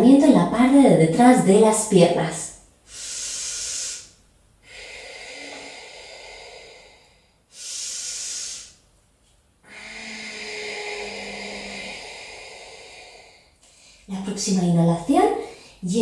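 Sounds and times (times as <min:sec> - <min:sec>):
person breathing: 0:02.8 - 0:08.9, 0:09.6 - 0:14.1, 0:15.4 - 0:15.9.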